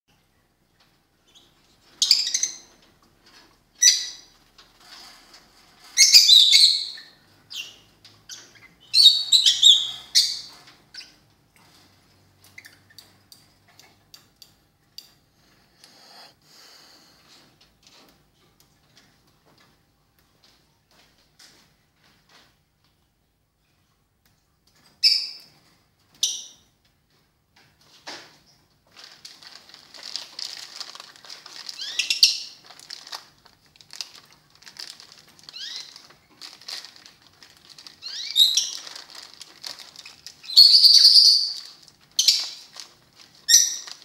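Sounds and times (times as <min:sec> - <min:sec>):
high-pitched chirping squeaks: 0:06.0 - 0:11.2, 0:38.0 - 0:38.8, 0:40.4 - 0:41.6.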